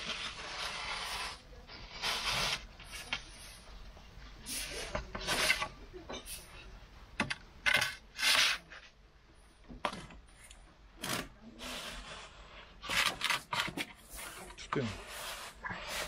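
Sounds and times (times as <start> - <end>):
wooden peel scraping on stone: 0.0 - 3.4, 4.5 - 5.8, 7.7 - 8.8, 11.0 - 16.0.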